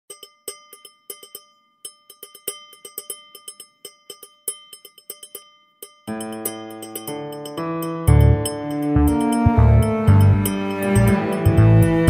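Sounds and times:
faint held ringing tone: 0.1s - 11.6s
tinkling bell-like strikes: 0.1s - 12.0s
sustained musical chord: 7.6s - 12.0s.

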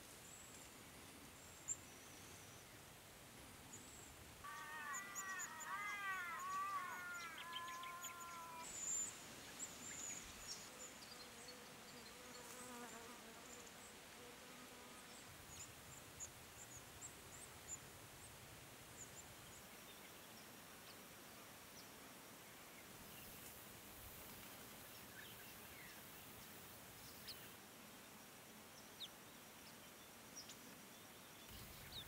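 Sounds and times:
bird singing arching notes: 4.5s - 9.0s
finches high thin calls: 4.5s - 9.0s.

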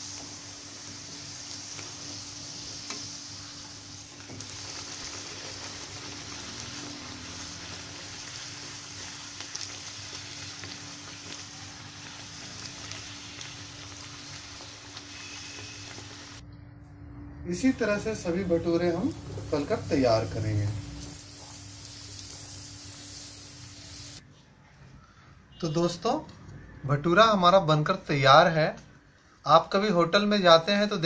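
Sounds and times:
deep-frying sizzle: 0.0s - 16.4s, 17.6s - 24.2s.

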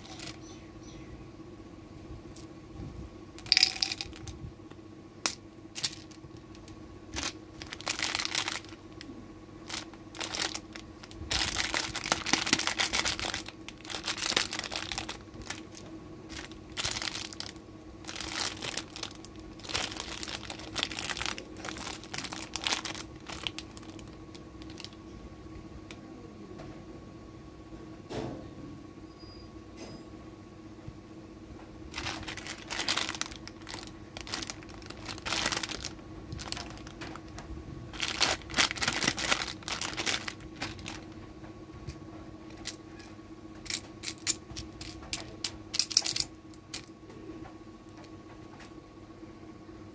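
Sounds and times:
plastic wrappers crinkling: 0.0s - 0.4s, 3.4s - 4.4s, 5.3s - 25.0s, 31.9s - 41.2s, 42.5s - 42.8s, 43.6s - 46.9s
wrapper tearing open: 7.1s - 8.9s, 9.6s - 25.0s, 31.9s - 37.4s, 38.0s - 41.1s.

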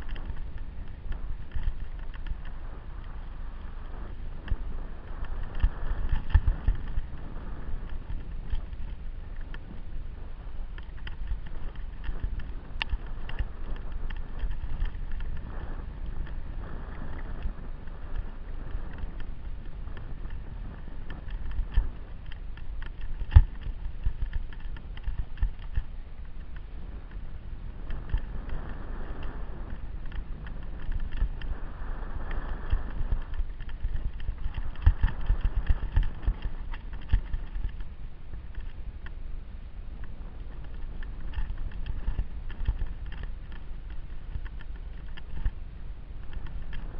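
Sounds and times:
camera knocks and rattles: 0.0s - 2.6s, 32.9s - 37.9s
wind buffeting microphone: 0.0s - 46.9s.

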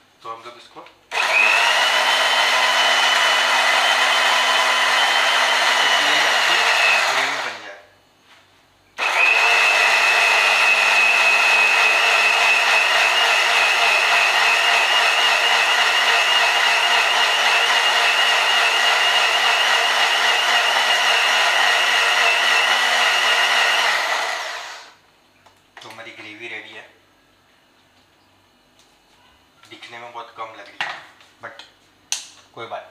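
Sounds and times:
mixer grinder motor whining: 1.1s - 7.7s, 9.0s - 25.0s.

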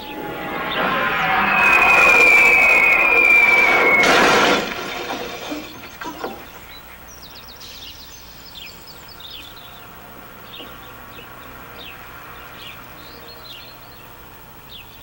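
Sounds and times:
falling whistle: 0.0s - 6.0s
birds chirping: 0.0s - 15.0s
loud crash with breaking glass: 0.2s - 6.5s
debris rattling: 1.5s - 6.7s.

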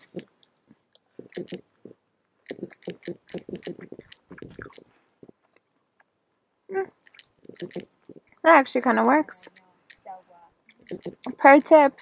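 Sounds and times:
person chewing: 0.0s - 5.8s.

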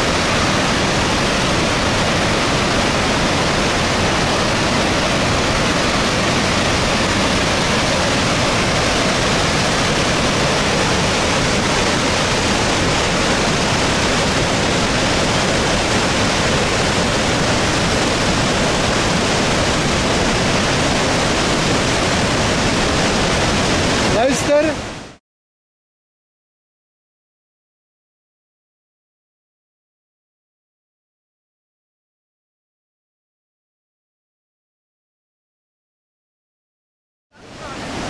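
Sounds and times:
waterfall rushing: 0.0s - 25.2s, 37.4s - 38.0s.

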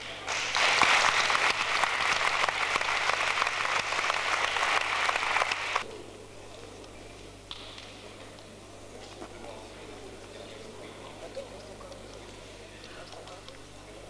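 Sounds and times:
audience applauding: 0.3s - 5.8s.

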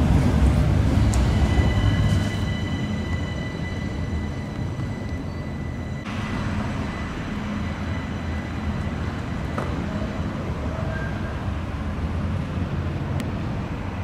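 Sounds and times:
tram rumbling on street track: 0.0s - 14.0s
faint high whining tones: 0.9s - 11.9s.

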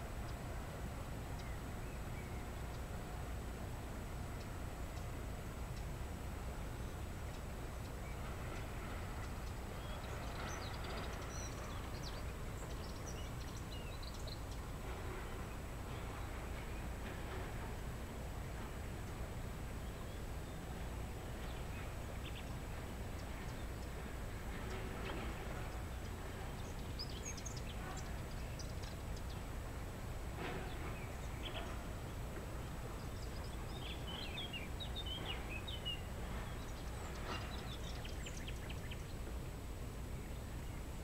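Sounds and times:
birds chirping: 6.8s - 17.1s, 19.8s - 29.7s, 30.4s - 39.3s.

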